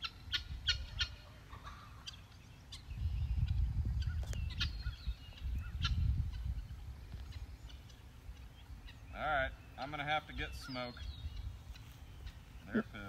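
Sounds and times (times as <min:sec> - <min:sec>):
short bird calls: 0:00.0 - 0:13.0.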